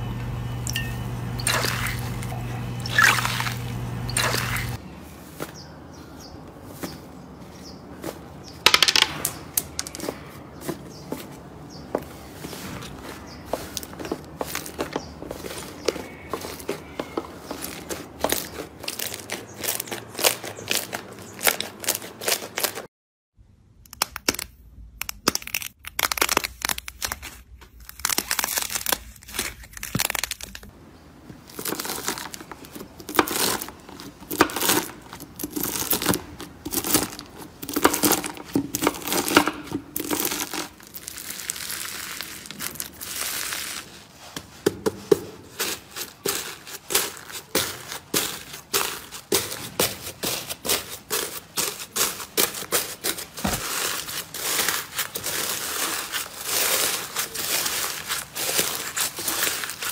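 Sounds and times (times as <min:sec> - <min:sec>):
slime crackling and popping: 0:23.9 - 0:30.7, 0:34.3 - 0:43.8.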